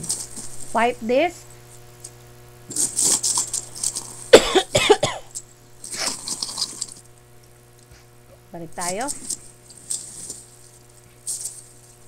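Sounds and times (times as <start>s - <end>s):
woman coughing: 4.3s - 5.3s.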